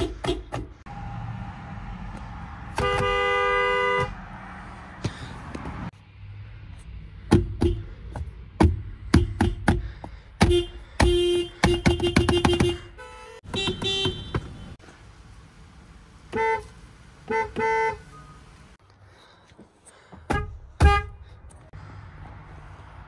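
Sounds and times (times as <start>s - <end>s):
car horn short taps: 2.8s - 4.2s, 10.4s - 14.7s, 20.3s - 21.2s.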